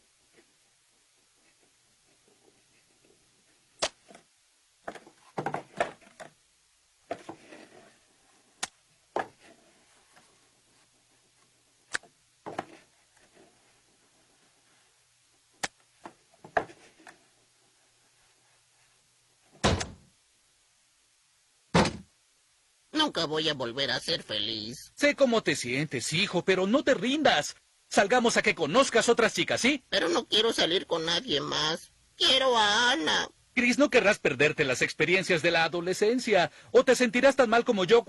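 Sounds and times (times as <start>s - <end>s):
thump: 19.6s - 20.0s, 21.7s - 22.1s.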